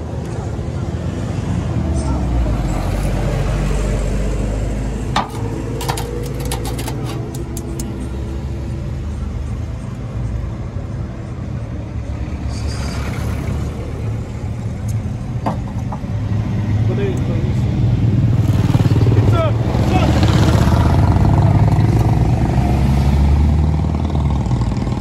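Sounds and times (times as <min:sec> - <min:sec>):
engine humming: 0:02.0 - 0:11.4.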